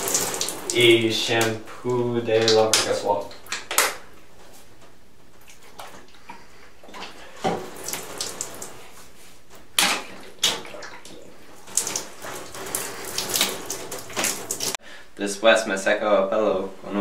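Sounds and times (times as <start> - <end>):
water splashing onto shower floor: 0.0 - 4.1, 6.8 - 14.8.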